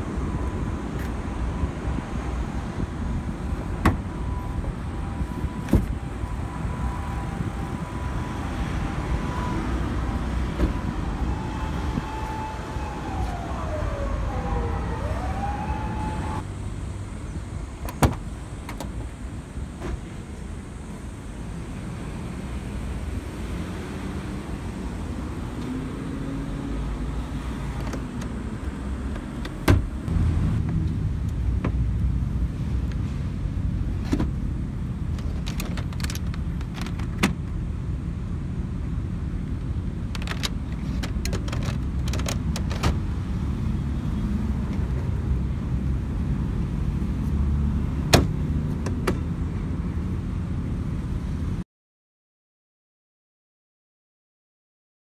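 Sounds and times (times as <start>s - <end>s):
plastic seat latches clicking: 40.2s - 43.0s, 48.1s - 49.2s.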